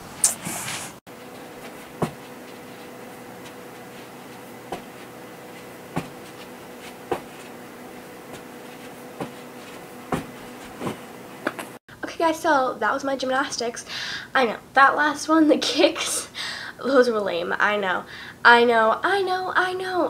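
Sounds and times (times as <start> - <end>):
faint room hum: 0.0 - 20.0
feet thumping on hard floor: 1.2 - 11.6.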